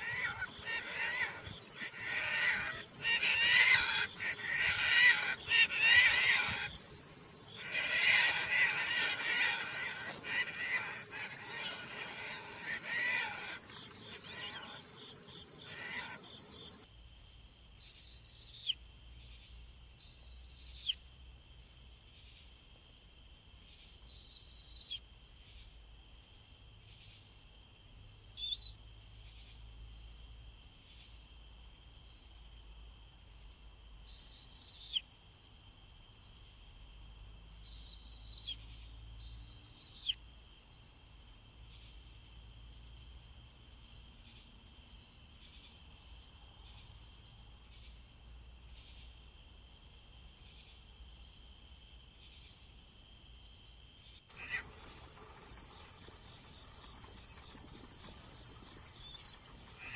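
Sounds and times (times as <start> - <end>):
tern calls: 0.0 - 16.8, 54.3 - 59.9
high-pitched insect drone: 54.3 - 59.9.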